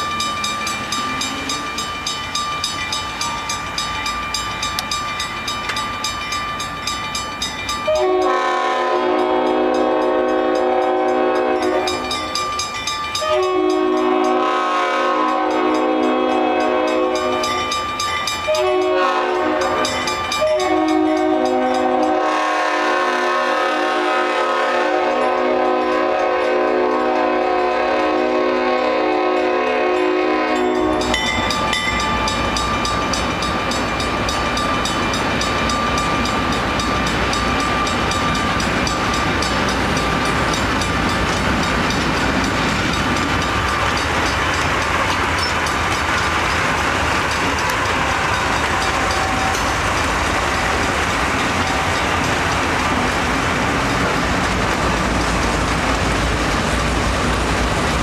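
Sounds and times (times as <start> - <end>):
crossing signal bell ringing: 0.0 - 23.2, 25.1 - 52.7
train rumbling past: 0.0 - 58.0
locomotive air horn: 7.9 - 12.0, 13.2 - 17.4, 18.5 - 31.2.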